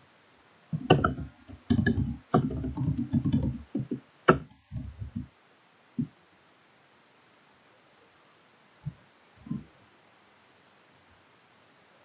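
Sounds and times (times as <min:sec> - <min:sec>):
computer keyboard keystrokes: 0:00.8 - 0:05.3.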